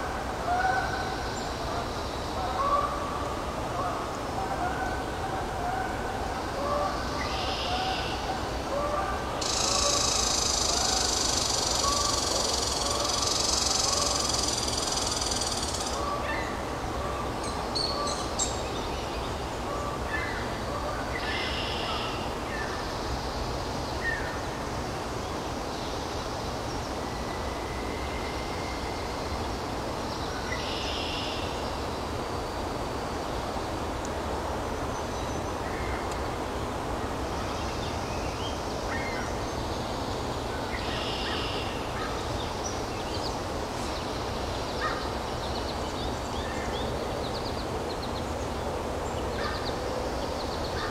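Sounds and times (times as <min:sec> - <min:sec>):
steady background hiss: 0:00.0 - 0:50.9
bird song phrases: 0:06.8 - 0:08.3, 0:30.2 - 0:31.6, 0:37.4 - 0:50.9.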